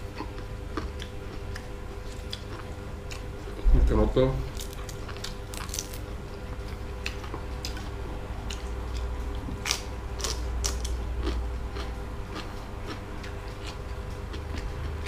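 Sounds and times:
steady low hum: 0.0 - 15.0
crunching bites of raw vegetable: 4.5 - 6.1, 8.5 - 15.0.

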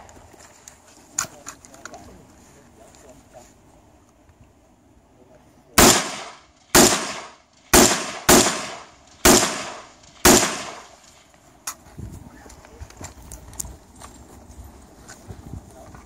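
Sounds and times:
rifle shots echoing: 5.8 - 11.3.

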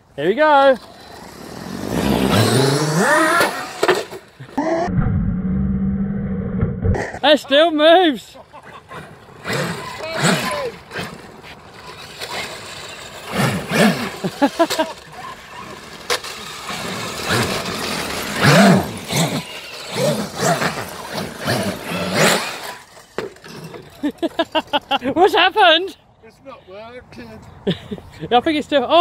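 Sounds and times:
tyre noise on concrete: 0.8 - 4.9.

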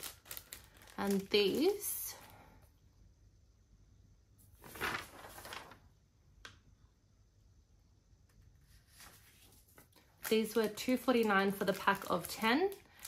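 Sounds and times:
packet rustling: 0.0 - 2.3, 4.6 - 5.9, 8.9 - 13.0.

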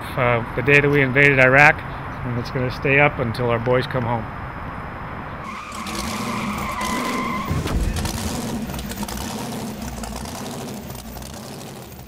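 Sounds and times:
car engine noise: 4.6 - 12.0
tire squeal: 5.4 - 12.0.

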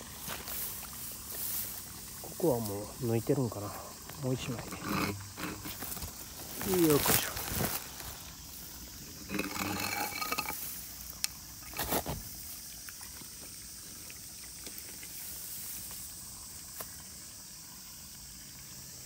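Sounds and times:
rubber boots rustling through grass: 0.0 - 2.8, 5.4 - 8.9
faint high hiss: 0.0 - 19.0.

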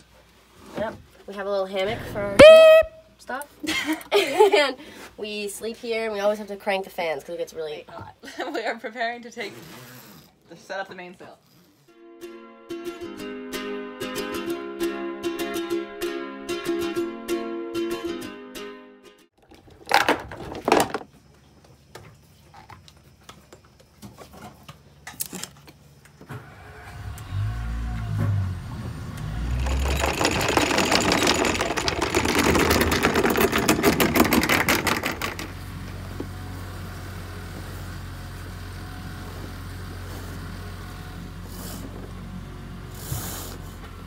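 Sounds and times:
boat engine starting and idling: 26.3 - 41.8.

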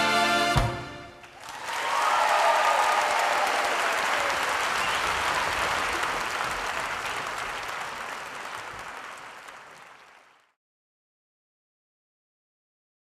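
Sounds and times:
audience applauding: 1.2 - 10.6.

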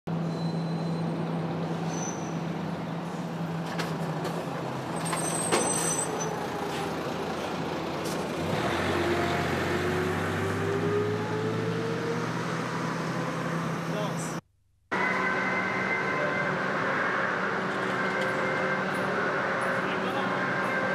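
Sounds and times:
rising machine whine: 8.6 - 13.8, 14.9 - 20.9
machinery hum: 14.9 - 20.9.

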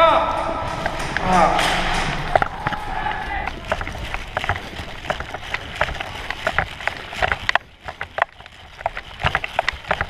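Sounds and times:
gear jostling: 0.0 - 10.0
running footsteps on dry grass: 2.1 - 10.0.

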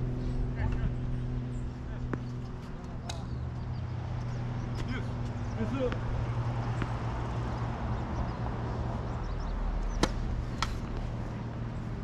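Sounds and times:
tennis ball pops on racket: 10.0 - 11.0.

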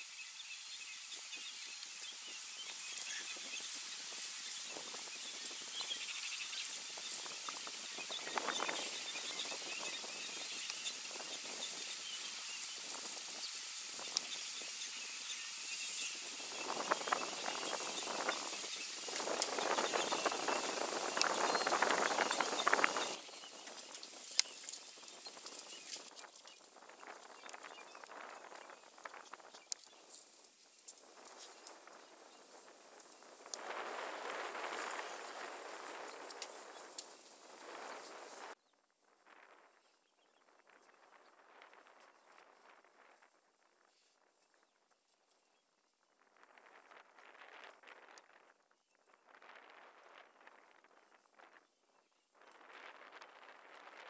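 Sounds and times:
high-pitched insect drone: 0.0 - 26.2
rushing rustling noise: 2.1 - 38.6.

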